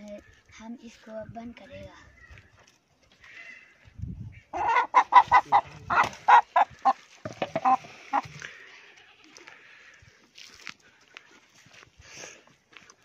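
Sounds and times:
chicken squawking: 4.4 - 8.4.

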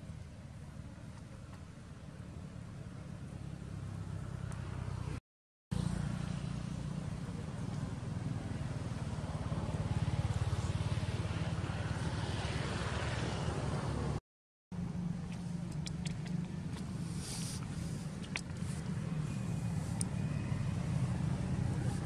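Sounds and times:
low engine-like rumble: 5.8 - 22.0.

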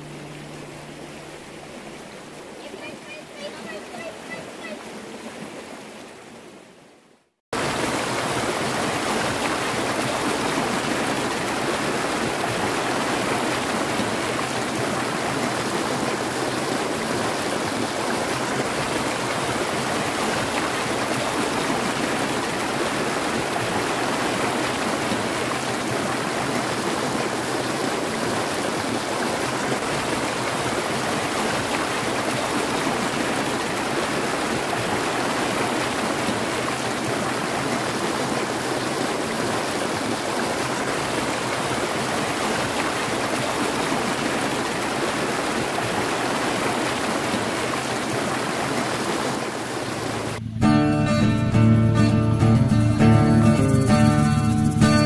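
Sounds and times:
stream rushing over stones: 0.0 - 50.4.

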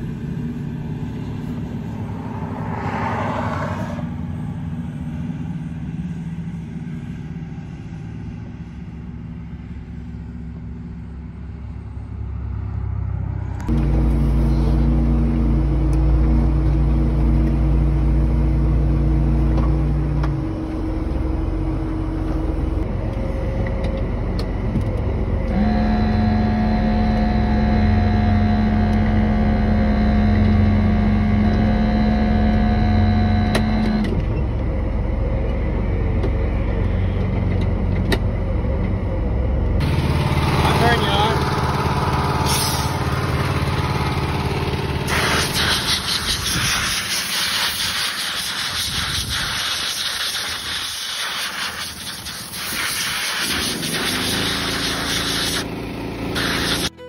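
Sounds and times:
tractor engine running: 0.0 - 3.3, 4.0 - 57.0
whining tones: 0.0 - 5.8, 11.8 - 47.8
engine and road noise in cab: 0.0 - 57.0.

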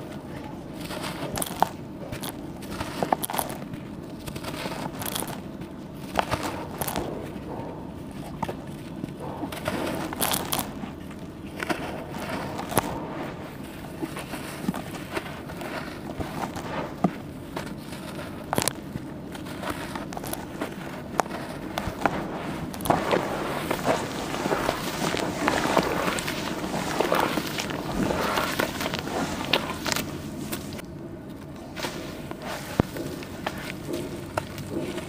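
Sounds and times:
charcoal crackles and clicks: 0.0 - 35.0
wet charcoal crumbling: 0.0 - 35.0.

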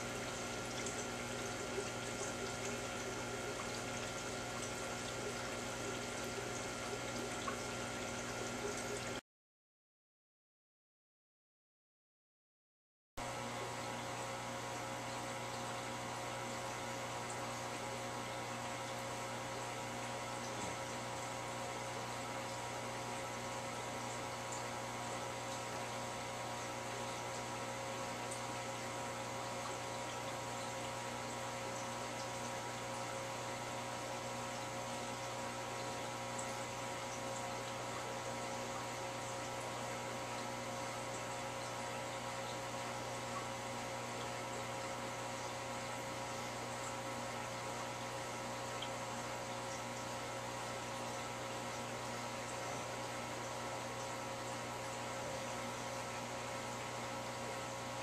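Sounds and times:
filter pump electrical hum: 0.0 - 9.2, 13.2 - 58.0.

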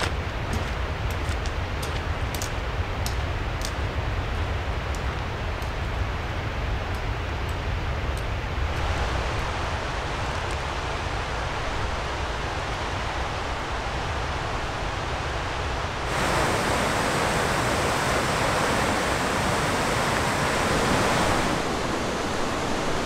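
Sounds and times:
steady outdoor hiss: 0.0 - 23.0
wind rumbling on microphone: 0.0 - 23.0
stream flowing over rocks: 16.0 - 23.0.

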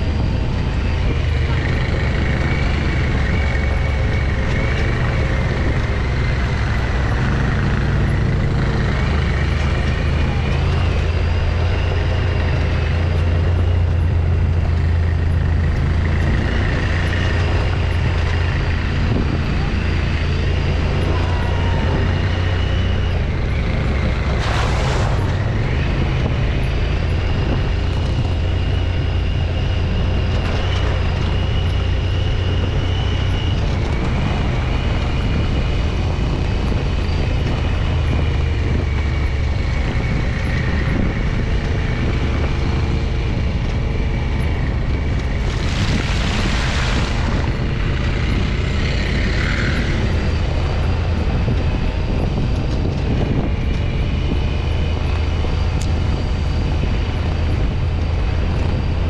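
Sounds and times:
utility vehicle engine drone: 0.0 - 59.0
bursts of rushing noise: 23.7 - 26.6, 45.0 - 49.8.

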